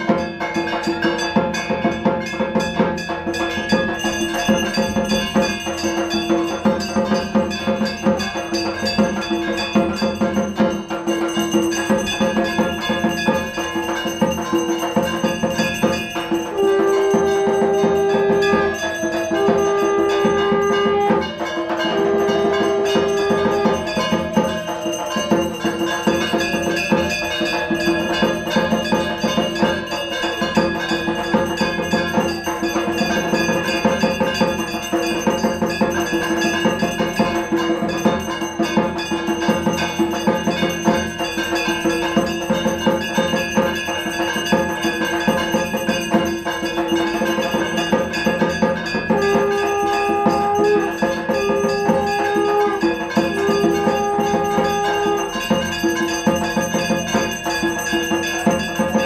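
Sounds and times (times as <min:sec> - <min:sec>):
bell-like metal tones: 0:00.0 - 0:59.0
rhythmic percussion: 0:00.0 - 0:59.0
long held notes: 0:16.2 - 0:27.5, 0:49.0 - 0:55.7.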